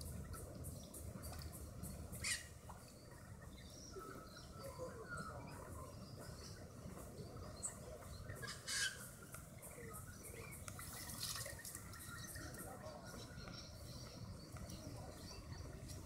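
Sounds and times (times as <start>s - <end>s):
faint bird chirps: 0.0s - 16.0s.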